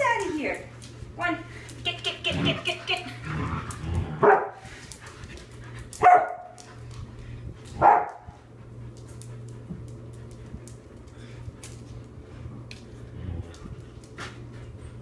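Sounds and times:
dog barking: 4.2 - 4.6, 6.0 - 6.6, 7.8 - 8.2.

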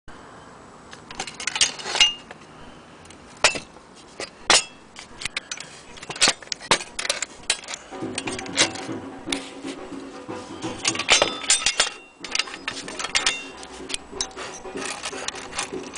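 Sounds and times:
low steady hum: 0.1 - 15.9
metal toy parts clinking: 1.1 - 2.3, 3.4 - 9.4, 10.7 - 15.9.

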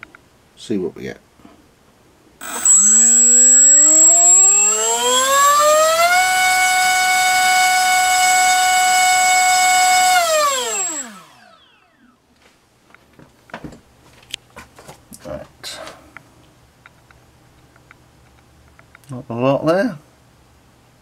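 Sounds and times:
drone motor whining: 2.4 - 12.1
steady high-pitched whine: 2.4 - 12.4.

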